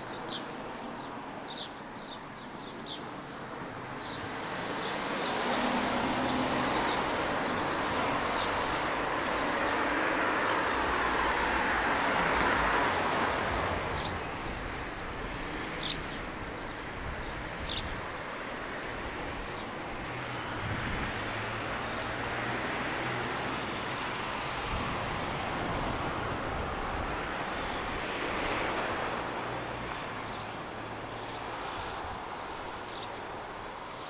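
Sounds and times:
small birds chirping: 0:00.0 - 0:09.9, 0:13.9 - 0:18.0.

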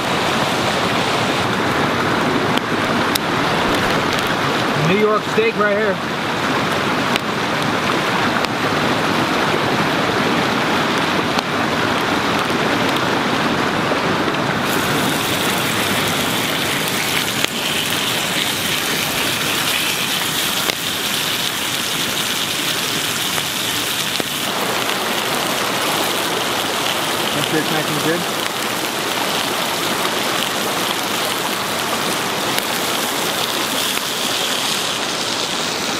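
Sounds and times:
steaks sizzling in skillet: 0:14.7 - 0:24.5, 0:32.5 - 0:35.5.

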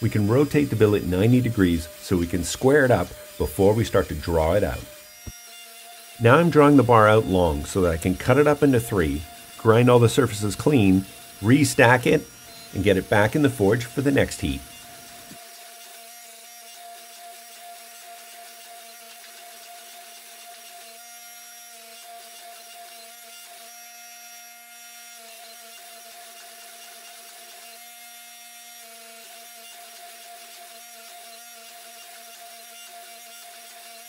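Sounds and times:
hydraulic press motor whine: 0:00.0 - 0:05.4, 0:06.1 - 0:15.4
harsh buzzing of press: 0:00.0 - 0:19.2.

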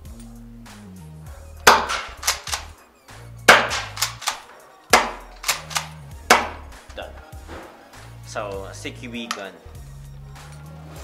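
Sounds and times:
airsoft shotgun firing: 0:01.7 - 0:02.7, 0:03.5 - 0:06.7
shotgun pump racking clicks: 0:01.9 - 0:02.7, 0:03.7 - 0:04.5, 0:05.1 - 0:06.0.

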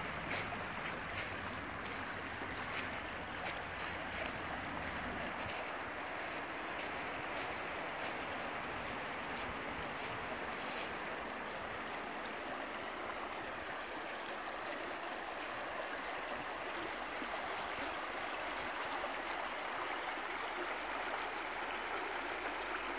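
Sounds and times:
stream babbling over stones: 0:00.0 - 0:22.9.

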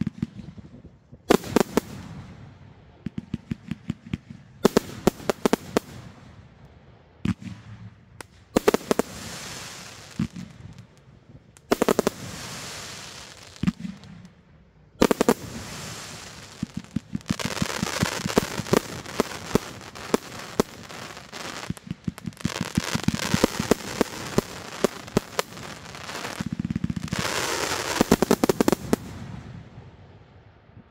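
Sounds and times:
crackling hiss: 0:08.2 - 0:29.4
firework shots launching and bursting: 0:15.0 - 0:29.5.

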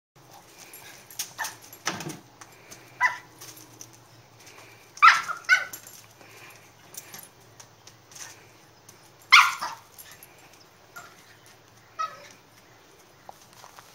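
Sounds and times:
small dog barking: 0:03.0 - 0:03.3, 0:05.0 - 0:05.8, 0:09.3 - 0:09.9.

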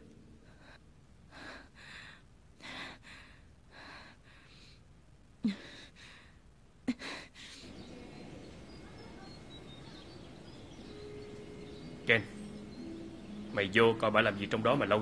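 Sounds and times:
woman breathing unevenly: 0:00.4 - 0:08.6.

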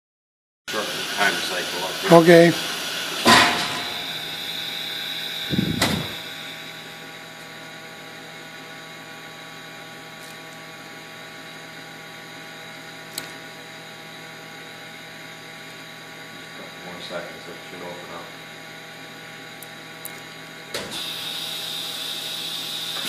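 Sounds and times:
industrial machine hum: 0:00.7 - 0:23.0
thump: 0:05.7 - 0:06.2.

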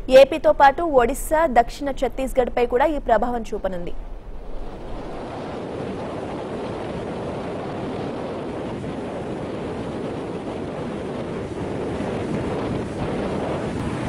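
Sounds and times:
wind on microphone: 0:04.0 - 0:14.0
sea surf breaking on shore: 0:04.4 - 0:14.0.

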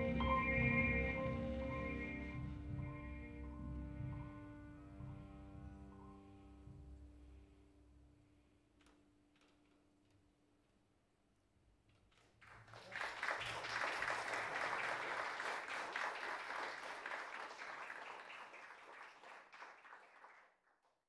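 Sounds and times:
audience applauding: 0:12.4 - 0:20.8.

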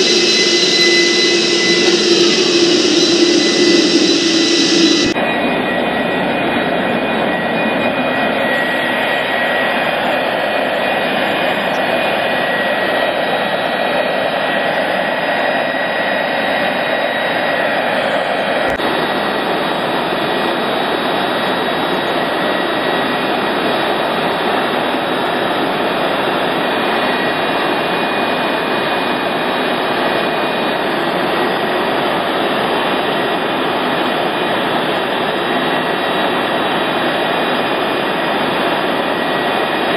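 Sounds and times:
high whistling tones: 0:00.0 - 0:05.3
jet engine roaring: 0:00.0 - 0:39.9.

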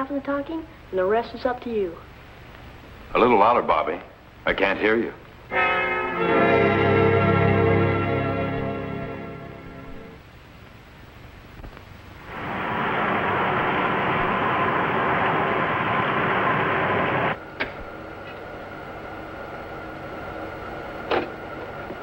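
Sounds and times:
low steady hum: 0:00.0 - 0:22.0
rocket engine rushing: 0:12.2 - 0:17.4.

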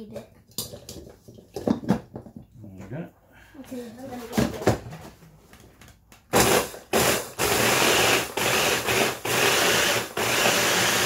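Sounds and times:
food chopper motor pulsing: 0:06.4 - 0:11.0.

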